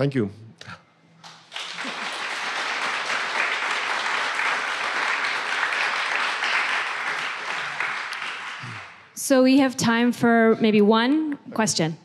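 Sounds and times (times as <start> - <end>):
audience applauding: 1.2 - 9.1.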